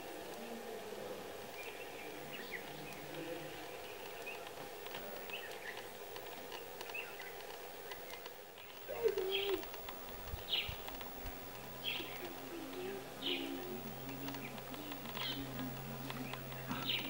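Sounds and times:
small birds chirping: 0.0 - 17.0
low wavering cooing call: 8.6 - 17.0.

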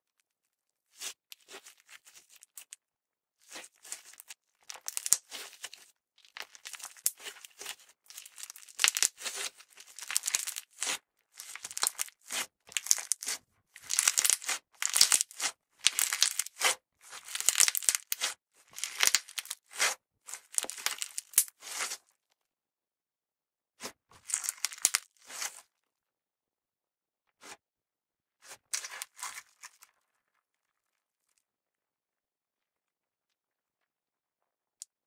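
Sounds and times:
slime squishing: 0.9 - 2.7, 3.4 - 22.0, 24.2 - 25.6, 28.5 - 30.0.

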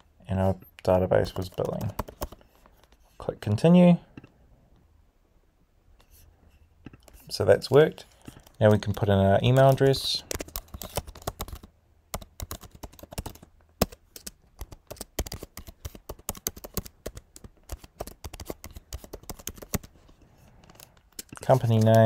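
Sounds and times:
keyboard typing: 1.2 - 2.4, 8.3 - 19.9, 20.6 - 22.0.

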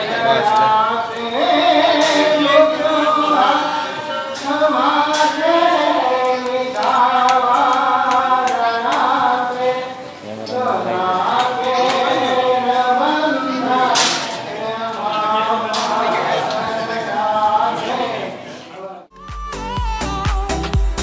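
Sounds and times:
voices chanting devotional song: 0.0 - 19.1.

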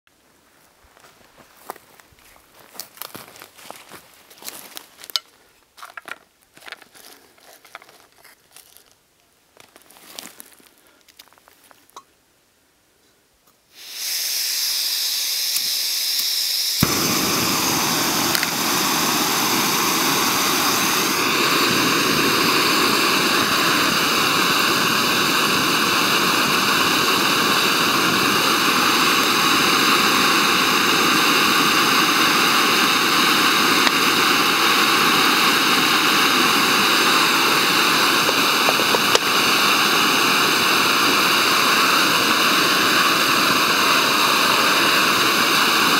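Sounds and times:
gas hissing from burner: 13.7 - 45.9
stove burner running: 13.7 - 45.9.

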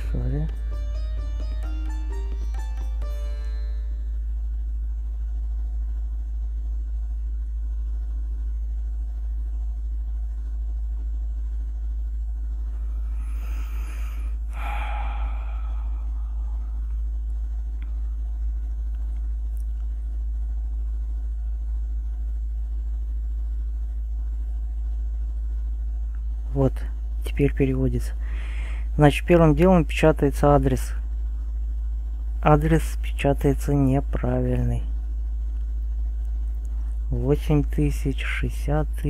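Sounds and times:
steady low hum: 0.0 - 39.0
breathy sigh near microphone: 13.1 - 17.0.

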